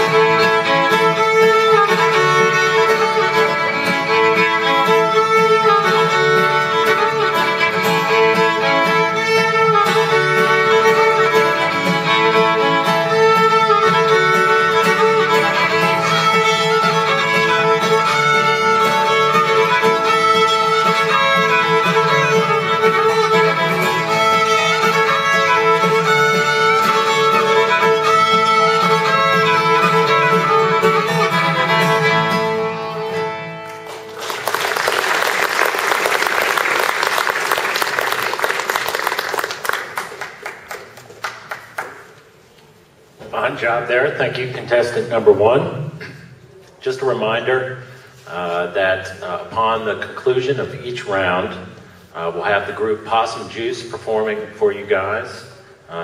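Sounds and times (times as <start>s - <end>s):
acoustic guitar: 0.0s - 34.2s
fiddle playing a tune: 0.0s - 34.3s
audience applause: 33.7s - 42.1s.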